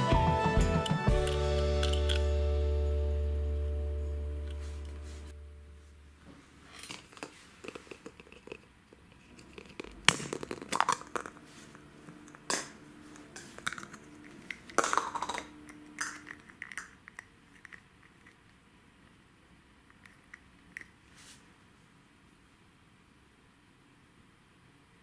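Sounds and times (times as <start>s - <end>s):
plastic shell crinkling: 6.6s - 18.6s
plastic egg snapping open: 6.8s - 11.4s, 12.2s - 18.5s
plastic clicks: 12.2s - 18.5s.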